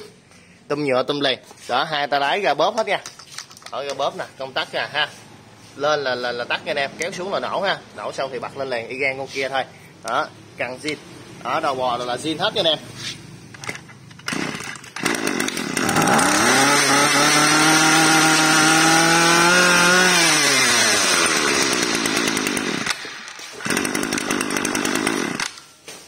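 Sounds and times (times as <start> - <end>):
brush cutter engine revving: 13.6 - 25.7.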